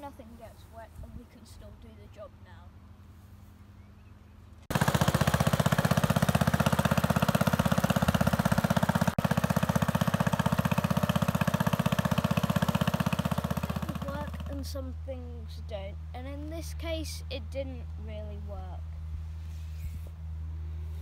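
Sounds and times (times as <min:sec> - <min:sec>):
tractor engine running: 0:04.6 - 0:14.9.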